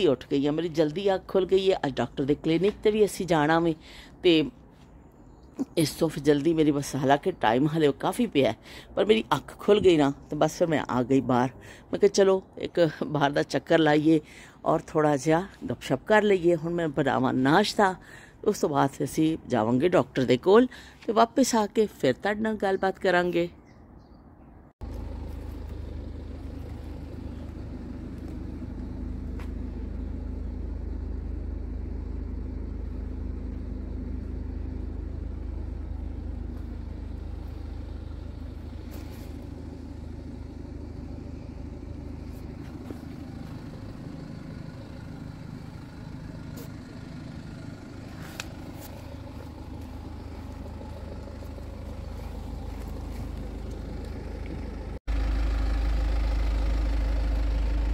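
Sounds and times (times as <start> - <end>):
car engine idling: 24.8 - 57.9.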